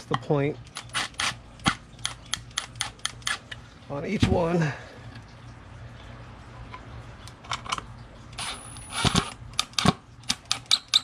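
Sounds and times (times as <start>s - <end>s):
sharp clicks and knocks: 0.0s - 3.6s, 9.0s - 11.0s.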